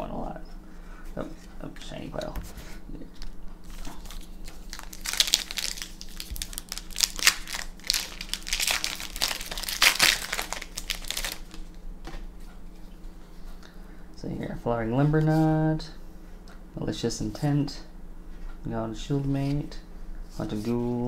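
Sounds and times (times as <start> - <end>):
foil wrapper crinkling: 3.2 - 11.7.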